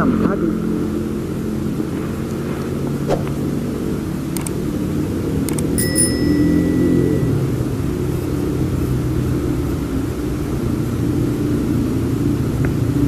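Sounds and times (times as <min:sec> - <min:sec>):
engine droning: 0:00.0 - 0:13.0
sharp clicks: 0:04.4 - 0:04.6, 0:05.5 - 0:05.8
bell-like ding: 0:05.8 - 0:07.7.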